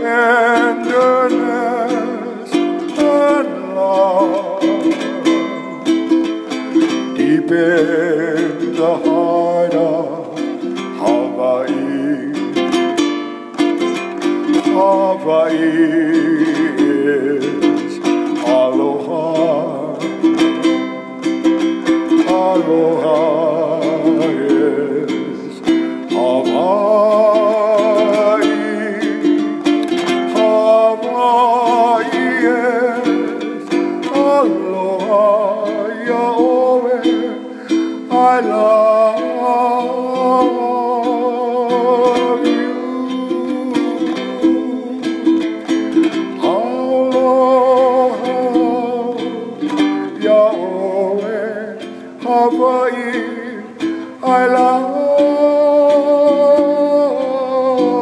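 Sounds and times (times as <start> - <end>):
wavering melody with vibrato: 0.0 - 58.0.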